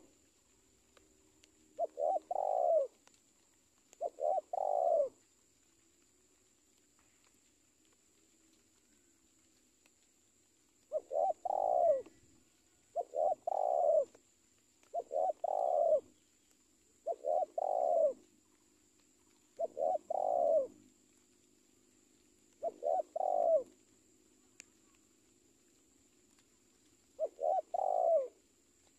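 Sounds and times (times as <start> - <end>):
dove cooing: 1.8 - 3.2, 3.9 - 5.2, 10.8 - 12.3, 12.9 - 14.2, 14.8 - 16.1, 17.0 - 18.3, 19.6 - 20.8, 22.5 - 23.8, 27.2 - 28.5.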